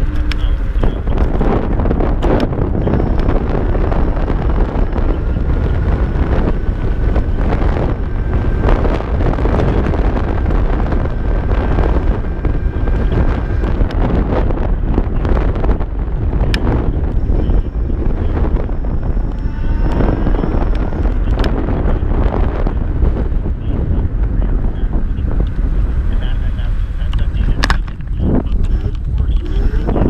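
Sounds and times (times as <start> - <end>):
faint electric motor whine: 0.0 - 30.0
wind buffeting microphone: 0.0 - 30.0.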